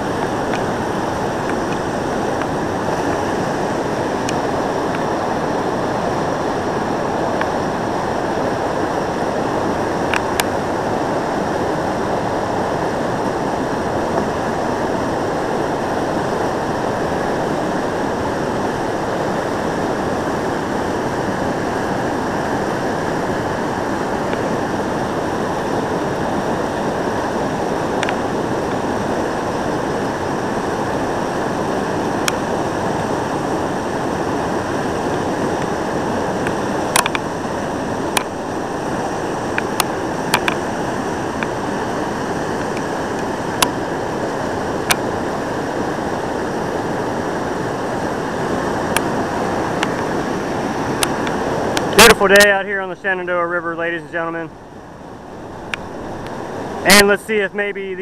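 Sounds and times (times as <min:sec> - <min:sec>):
whitewater rushing over rapids: 0:00.0 - 0:58.0.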